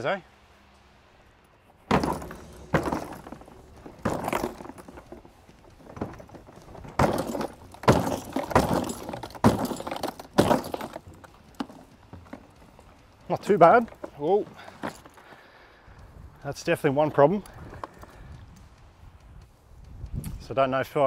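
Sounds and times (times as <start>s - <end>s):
cart wheels thumping down stairs: 1.8s - 15.4s.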